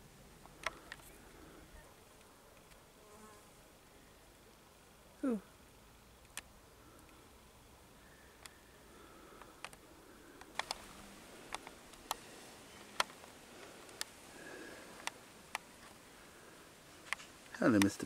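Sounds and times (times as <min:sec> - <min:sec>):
faint sharp clicks: 0:06.2 - 0:07.2, 0:08.4 - 0:08.6, 0:09.3 - 0:09.8, 0:10.4 - 0:10.9, 0:11.5 - 0:12.2, 0:14.9 - 0:16.0.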